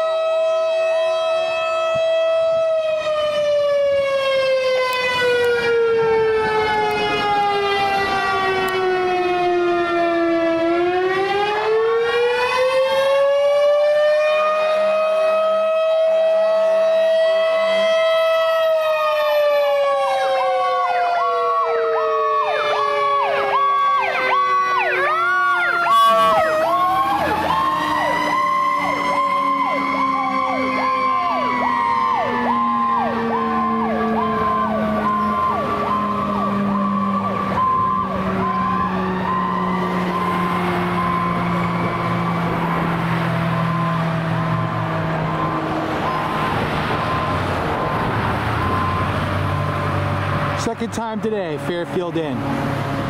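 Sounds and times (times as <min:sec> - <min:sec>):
electronic siren pulsing: 0:00.0 - 0:53.0
wailing fire station siren: 0:00.0 - 0:53.0
low pulsing horn tone: 0:25.9 - 0:26.8.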